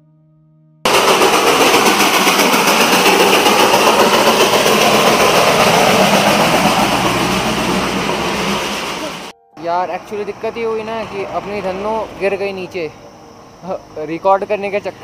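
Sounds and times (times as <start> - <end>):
bus engine: 0.9 - 9.3, 10.0 - 15.0
steam locomotive chuffing: 0.9 - 9.3, 10.1 - 12.9.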